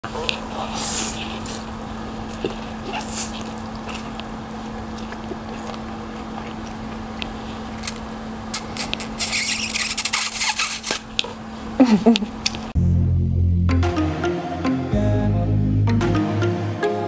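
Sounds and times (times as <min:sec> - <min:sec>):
steady low hum: 0:00.0 - 0:16.2
noodles slurped: 0:00.1 - 0:06.9
chewing: 0:00.1 - 0:07.4
music: 0:12.8 - 0:17.0.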